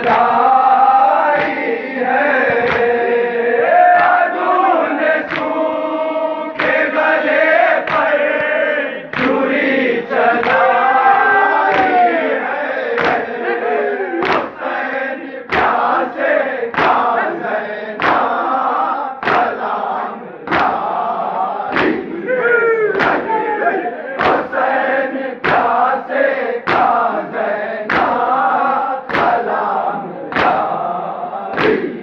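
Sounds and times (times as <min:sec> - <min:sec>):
men chanting together: 0:00.0 - 0:32.0
hands striking chests: 0:14.2 - 0:14.6, 0:21.7 - 0:22.1, 0:22.9 - 0:23.3.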